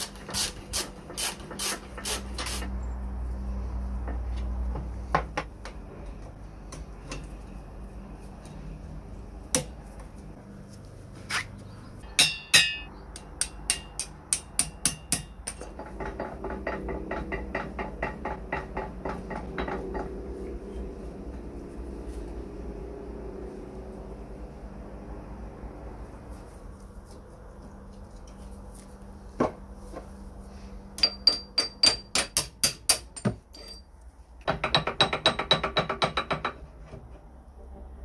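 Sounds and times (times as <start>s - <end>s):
hammer tapping on metal: 12.1s - 20.2s, 31.0s - 33.4s, 34.4s - 36.6s.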